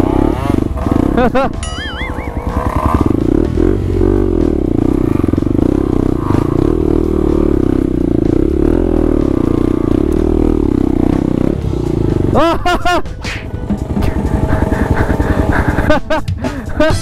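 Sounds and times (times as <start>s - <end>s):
dirt bike engine with throttle blips: 0.0s - 17.0s.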